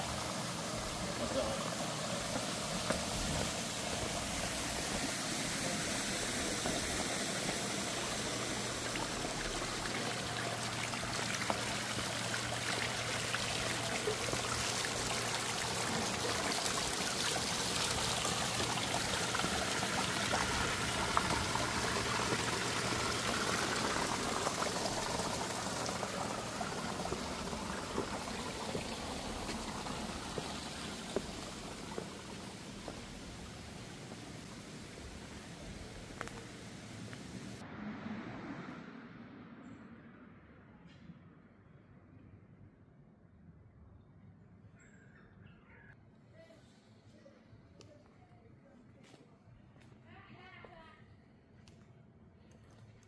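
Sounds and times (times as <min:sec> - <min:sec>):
fountain water trickling: 0:00.0 - 0:37.6.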